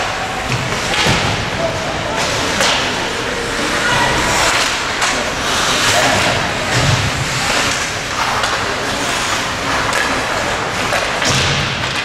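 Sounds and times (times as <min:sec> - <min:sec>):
ice hockey game rushing noise: 0:00.0 - 0:12.0
skate scrapes and stick knocks: 0:04.3 - 0:12.0.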